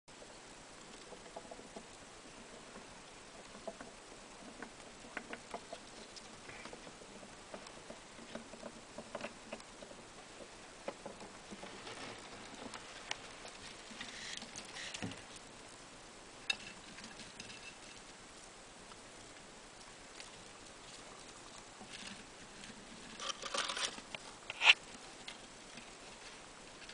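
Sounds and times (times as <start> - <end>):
rustling shavings: 11.4 - 15.4.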